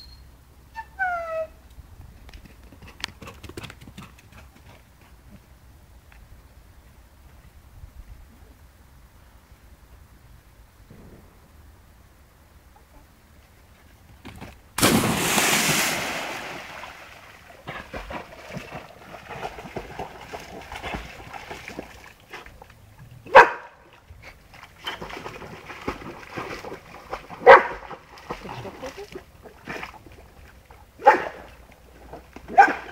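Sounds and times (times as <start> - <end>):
loud splash: 14.8 - 21.9
dog paddling and splashing: 14.8 - 32.9
dog barking: 23.3 - 23.8, 27.4 - 27.8, 31.0 - 31.5, 32.5 - 32.9.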